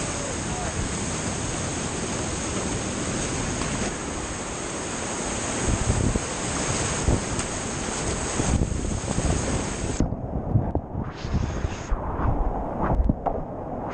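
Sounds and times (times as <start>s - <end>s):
rapids rushing: 0.0s - 10.0s
water splashes: 0.0s - 10.0s
boat thudding on waves: 0.0s - 10.1s.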